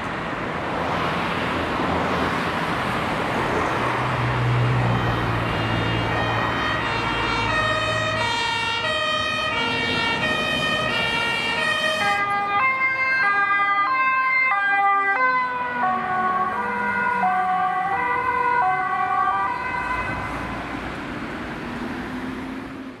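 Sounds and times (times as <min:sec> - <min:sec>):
passing vehicle engine and tyres: 0:00.0 - 0:23.0
two-tone emergency sirens: 0:04.4 - 0:20.9.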